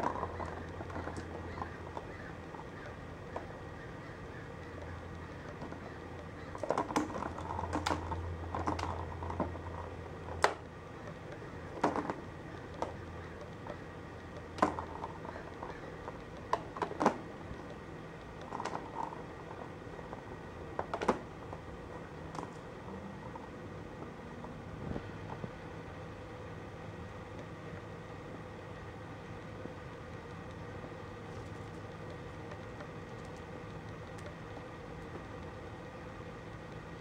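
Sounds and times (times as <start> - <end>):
plastic balls clicking in track: 0.0 - 22.6
low steady hum: 0.0 - 37.0.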